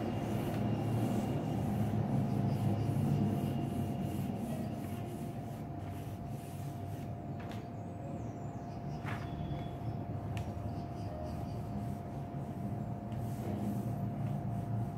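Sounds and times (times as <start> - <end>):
pencil scratching on paper: 0.0 - 7.1.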